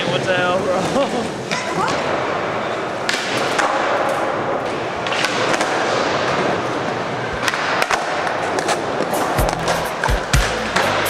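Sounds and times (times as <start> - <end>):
skateboard wheels rolling on concrete: 0.0 - 11.0
skateboard clacking on floor: 7.4 - 11.0.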